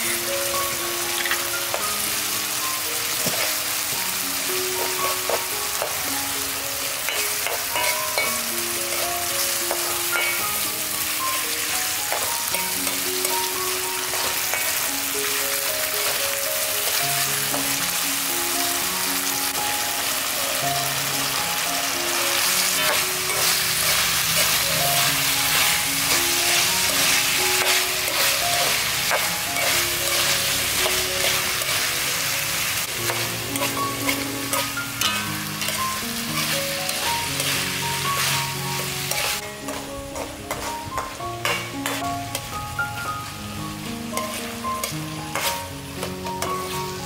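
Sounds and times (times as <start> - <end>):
food sizzling in a wok: 0.0 - 47.0
gentle melody: 0.0 - 47.0
metal spatula scraping a pan: 22.4 - 32.0, 33.0 - 42.5, 44.2 - 46.8.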